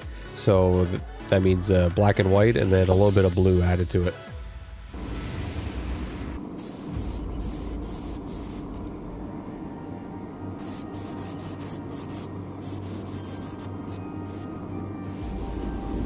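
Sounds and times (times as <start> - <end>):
steady low hum: 4.4 - 16.0
airbrush spraying in short bursts: 5.4 - 8.8, 10.6 - 16.0.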